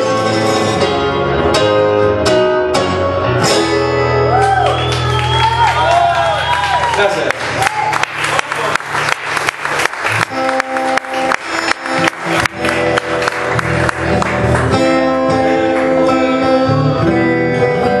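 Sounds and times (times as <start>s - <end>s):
acoustic guitar strumming: 0.0s - 4.4s, 10.2s - 18.0s.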